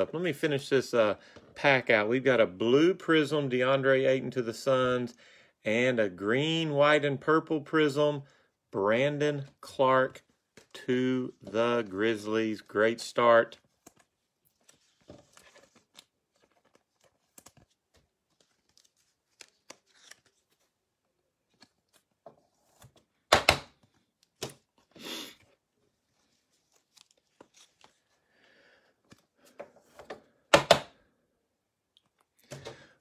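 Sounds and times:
cards clicking and rustling in plastic: 9.4s - 20.8s, 21.4s - 24.9s, 26.2s - 28.2s, 29.0s - 30.8s.

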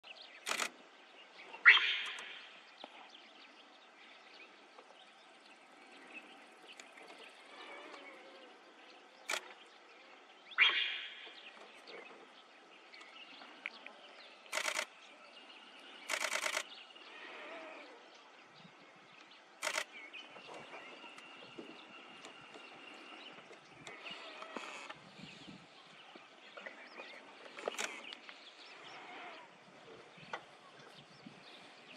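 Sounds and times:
camera shutter clicks: 0.4s - 0.8s, 9.3s - 9.6s, 14.5s - 14.9s, 16.0s - 16.7s, 19.6s - 19.9s, 27.6s - 28.0s.

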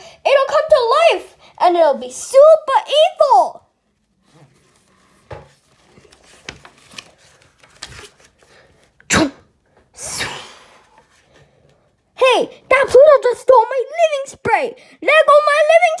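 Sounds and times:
book pages turning: 3.9s - 9.0s.

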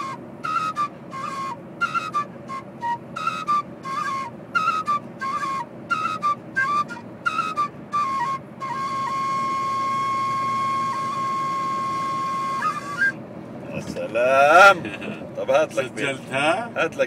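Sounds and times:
end-blown flute playing: 0.0s - 13.2s
car cabin road noise: 0.0s - 17.0s.

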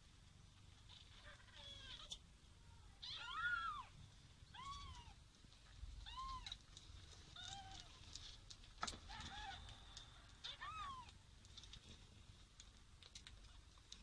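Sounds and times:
kittens mewing: 3.0s - 5.2s, 10.3s - 11.2s.

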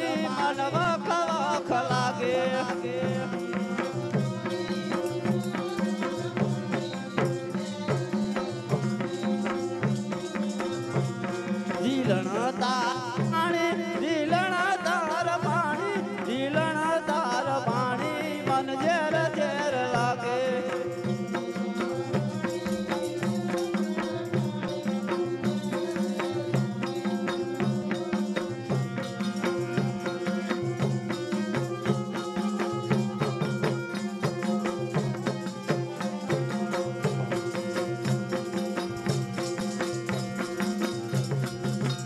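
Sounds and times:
tabla beat: 0.0s - 42.0s.

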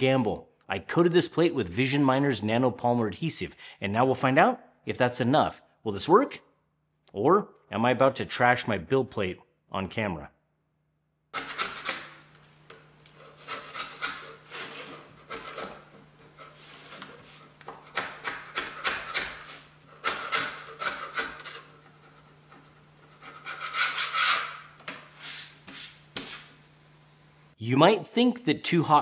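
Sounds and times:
scraper rasping on plastic: 13.1s - 26.5s.

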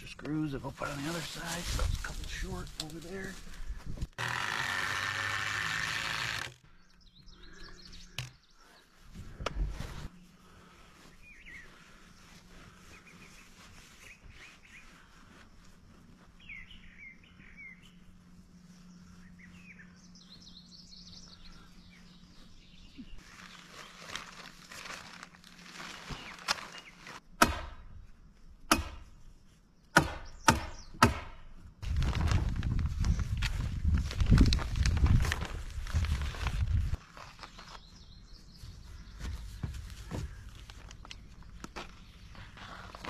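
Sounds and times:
birds chirping: 6.4s - 24.4s, 26.0s - 27.2s, 29.4s - 31.0s, 37.2s - 43.0s
plastic crinkling: 23.2s - 27.2s
plastic sheeting rustling: 23.2s - 27.2s, 31.8s - 37.8s.

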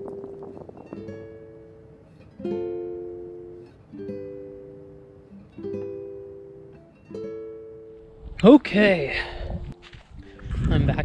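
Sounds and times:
slow plucked-string chords: 0.0s - 8.2s.

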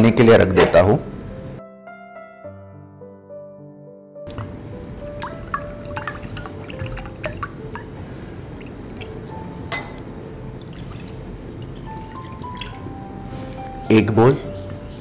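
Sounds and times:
water pouring into steel bowl: 4.4s - 9.9s, 10.5s - 13.0s.

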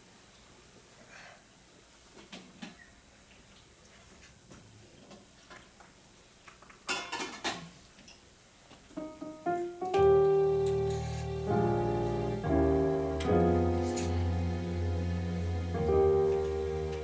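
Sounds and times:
keyboard playing chords: 9.0s - 17.0s.

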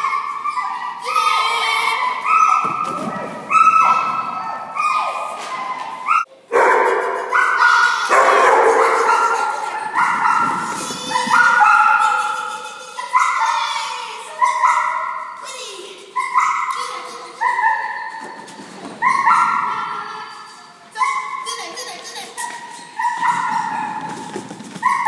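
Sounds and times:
dog barking with echo: 6.1s - 12.1s.

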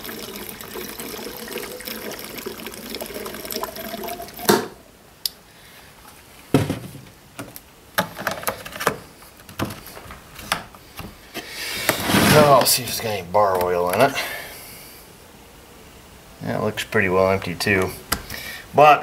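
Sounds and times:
fuel pouring into tank: 0.0s - 4.6s
gas can clunk: 4.4s - 4.8s
handling knocks and clicks: 6.6s - 11.2s.

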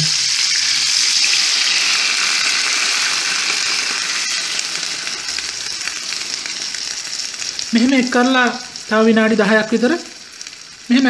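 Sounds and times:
pan sizzling: 0.0s - 11.0s.

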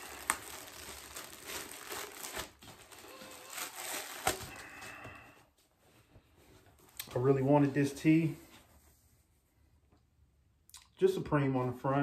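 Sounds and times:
plastic packaging crinkling: 0.0s - 5.1s.

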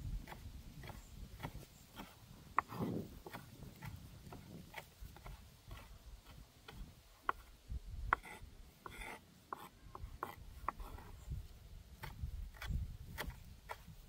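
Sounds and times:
knife chopping on wooden board: 0.2s - 7.5s, 12.0s - 13.9s.

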